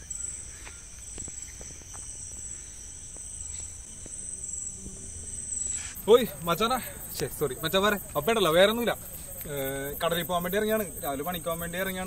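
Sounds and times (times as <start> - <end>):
crickets chirping: 0.0 - 12.0
faint ticks: 7.0 - 8.1.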